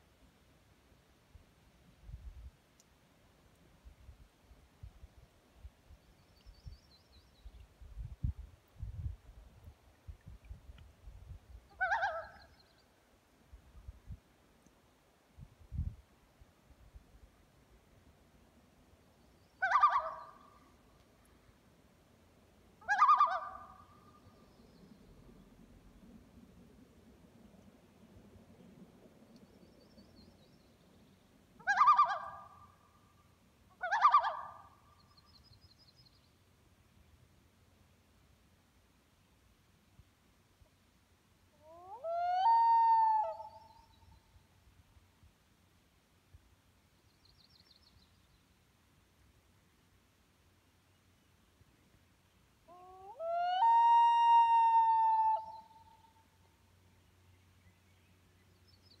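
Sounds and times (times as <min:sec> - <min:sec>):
loon quavering call: 0:11.8 - 0:12.4, 0:19.6 - 0:20.4, 0:22.8 - 0:23.8, 0:31.6 - 0:32.6, 0:33.8 - 0:34.7, 0:52.7 - 0:56.1.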